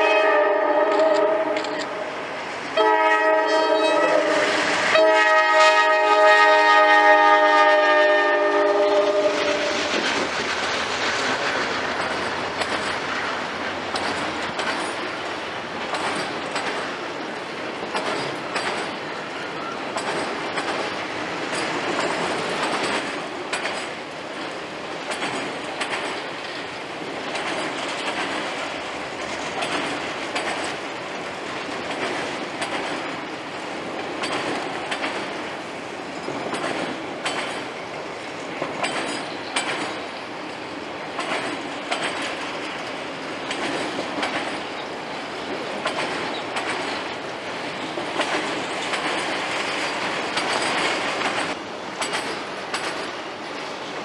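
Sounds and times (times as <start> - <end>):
wheels clacking over rail joints: 0.0 - 2.1, 2.7 - 54.0
train horn: 0.0 - 2.2, 2.8 - 9.9
train wheels on rails: 0.0 - 54.0.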